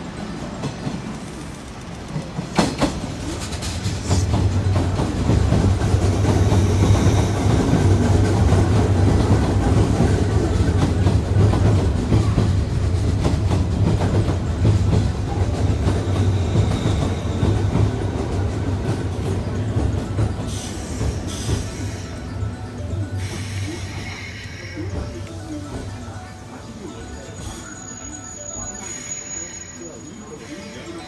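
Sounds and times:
electric train rumbling: 0.0 - 31.0.

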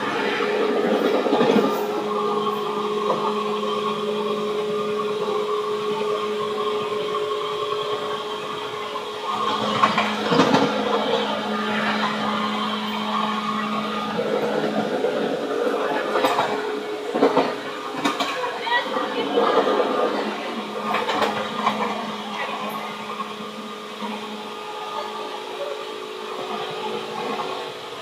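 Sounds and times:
electric train hum: 0.0 - 28.0
wheel and rail noise: 0.0 - 28.0.

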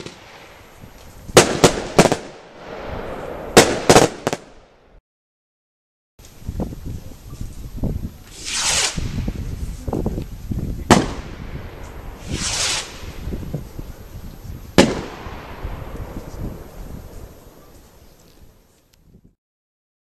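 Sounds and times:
firework bang: 1.4 - 4.8, 10.8 - 17.6
firework rocket hissing up: 7.7 - 18.5.

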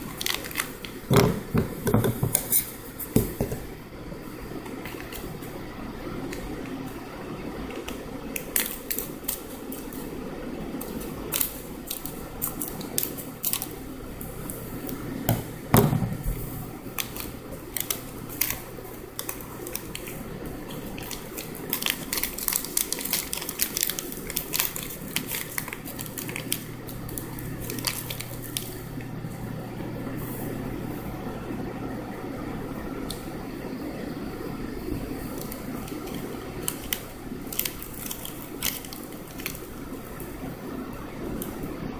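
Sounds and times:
foil wrapper crinkling: 0.0 - 1.5, 7.7 - 10.1, 10.7 - 15.0, 16.2 - 28.9, 35.2 - 40.2
steady low hum: 0.0 - 41.9.

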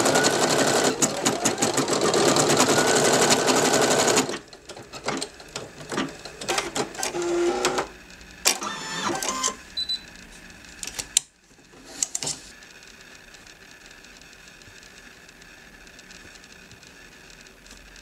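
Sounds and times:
rapid machine stitching: 0.0 - 7.9
embroidery machine clicks and whirs: 0.0 - 18.0.

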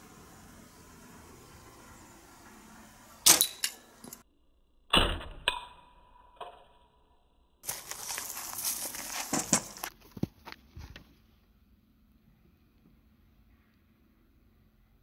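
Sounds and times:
footsteps in dry grass: 7.6 - 11.2.

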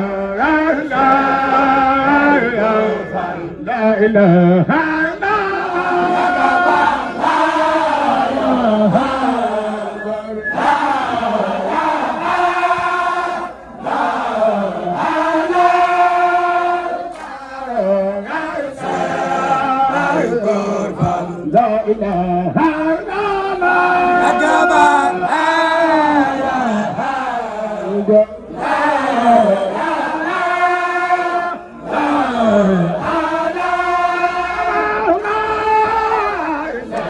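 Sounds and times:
group of men chanting: 0.0 - 37.0
lead voice over loudspeaker: 21.0 - 26.3.

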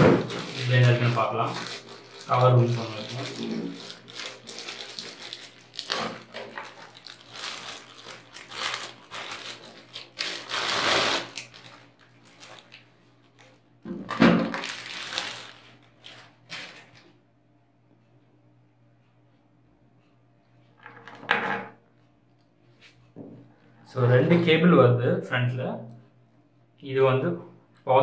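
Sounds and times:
plastic wrapping crinkling: 0.0 - 17.1.

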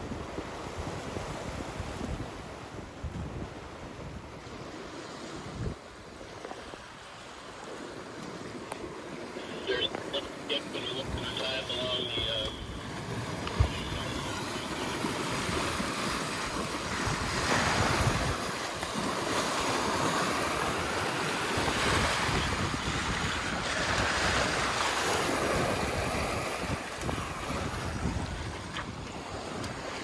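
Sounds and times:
water rushing along hull: 0.0 - 30.0
wind buffeting microphone: 12.7 - 19.2, 19.8 - 30.0.

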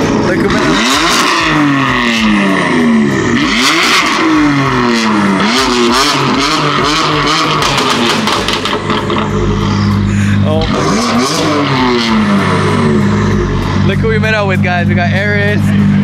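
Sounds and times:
car engine revving: 0.0 - 16.0
exhaust crackling pops: 1.1 - 10.0.

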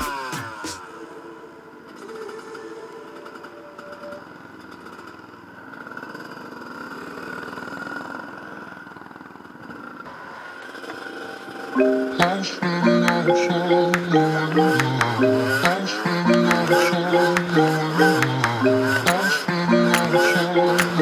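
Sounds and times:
dirt bike engine running: 4.2 - 10.1.

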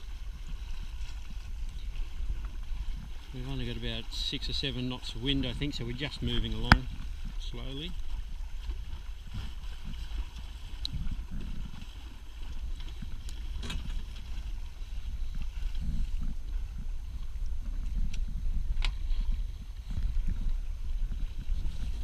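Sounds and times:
water washing along hull: 0.0 - 22.0
wind buffeting microphone: 0.0 - 22.0.

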